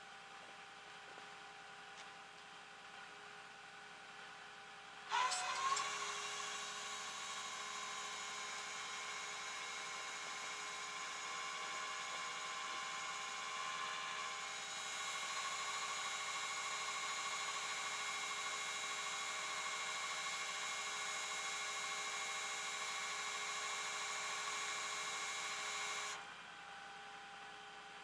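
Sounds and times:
hydraulic winch whining: 5.1 - 21.9.

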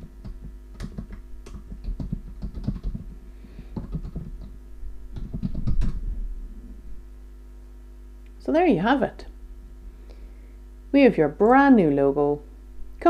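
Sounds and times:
computer keyboard key clicks: 0.3 - 3.0.

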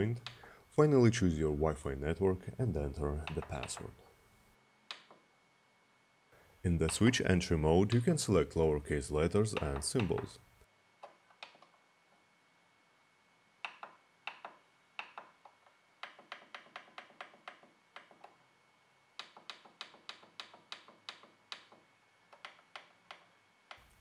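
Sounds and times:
plastic buttons clicking: 3.2 - 3.9, 9.5 - 10.4.

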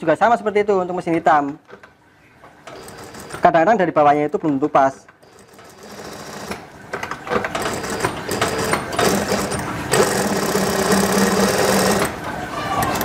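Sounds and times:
industrial sewing machine running: 2.7 - 3.6, 5.2 - 6.6, 7.3 - 13.0.

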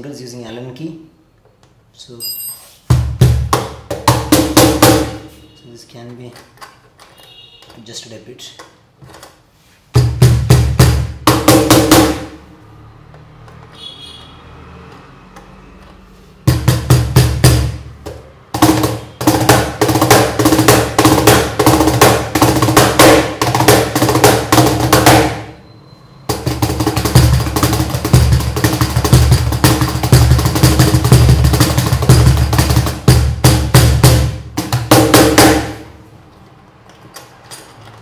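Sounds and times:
cajon played by hand: 2.9 - 5.4, 9.9 - 12.4, 16.4 - 25.5, 26.3 - 36.0.

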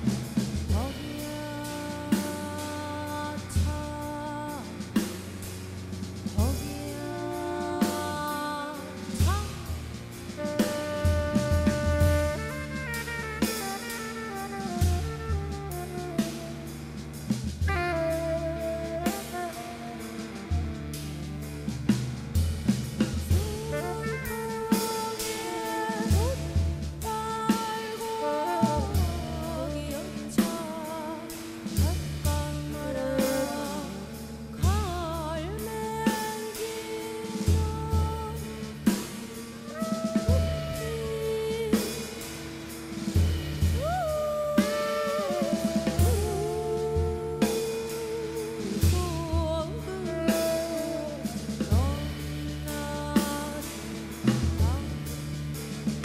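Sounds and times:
deep low notes: 0.0 - 27.5
jazz drum kit: 0.0 - 56.0
woman singing long notes: 6.4 - 9.7, 23.3 - 38.8, 39.6 - 42.2, 43.8 - 53.8, 54.5 - 55.0.

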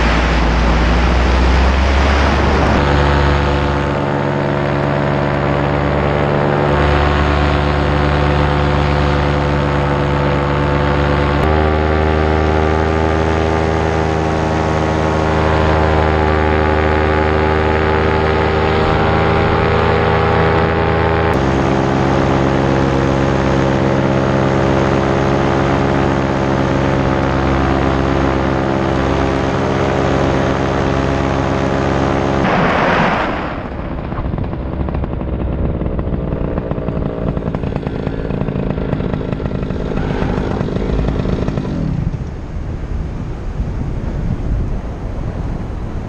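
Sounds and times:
wind rushing past microphone: 0.0 - 6.7, 32.4 - 46.0
paramotor engine and propeller droning: 0.0 - 46.0.

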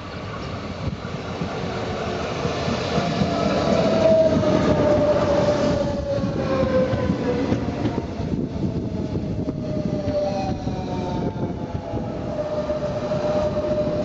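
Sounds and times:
train wheel and rail noise: 0.0 - 14.0
train whine falling in pitch: 2.9 - 14.0.

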